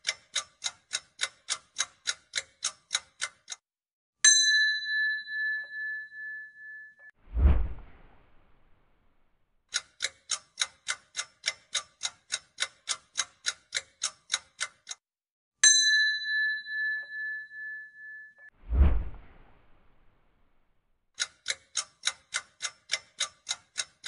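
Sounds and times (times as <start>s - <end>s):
clock ticking: 0.0s - 3.6s, 9.7s - 15.0s, 21.2s - 24.0s
bell ding: 4.3s - 7.1s, 15.6s - 18.5s.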